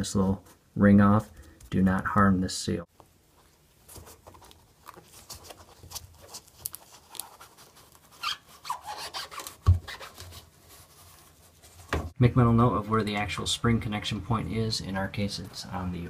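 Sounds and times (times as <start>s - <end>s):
gloved hands scraping rubber: 3.9s - 12.0s.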